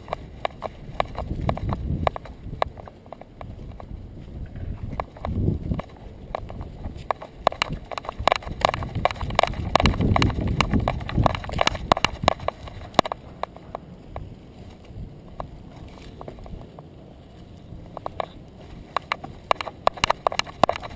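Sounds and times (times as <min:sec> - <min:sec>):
dog claws clicking on concrete: 0:04.9 - 0:13.8, 0:17.9 - 0:20.9.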